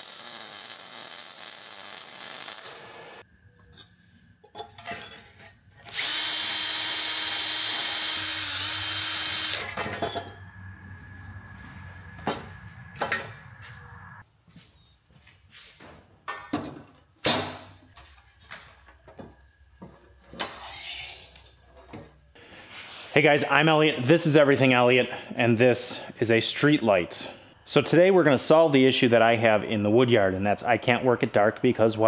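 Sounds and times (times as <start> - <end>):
cordless drill running: 5.9 - 9.7.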